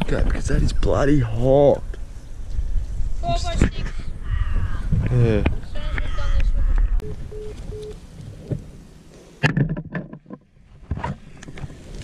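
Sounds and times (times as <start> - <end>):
wind rumbling on microphone: 0.0 - 8.9.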